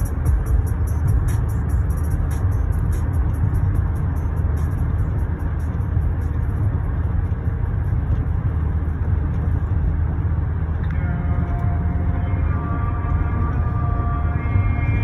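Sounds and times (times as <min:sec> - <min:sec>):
car cabin road rumble: 0:00.0 - 0:15.0
steady tones: 0:10.8 - 0:15.0.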